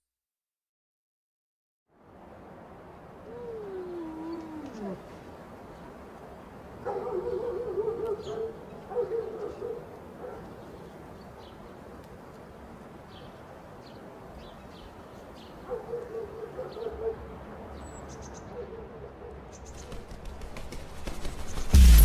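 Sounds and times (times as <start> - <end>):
low animal calls: 3.3 - 5.1
small birds chirping: 19.5 - 21.8
rising noise with clicks: 21.1 - 22.0
low rumble: 21.6 - 22.0.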